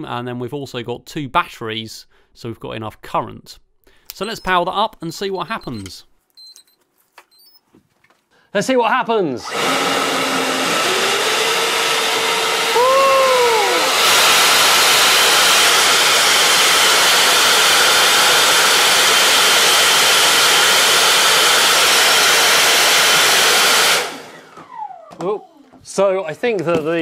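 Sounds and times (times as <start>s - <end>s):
electric fans blowing air: 9.4s - 25.4s.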